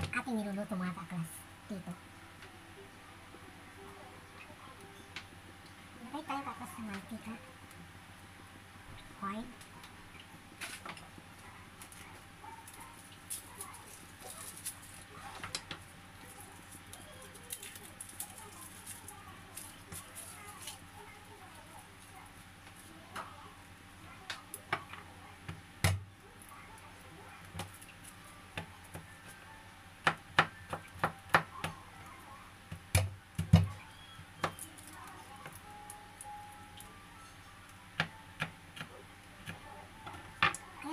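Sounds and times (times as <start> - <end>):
garlic cloves being peeled: 11.8 - 23.0.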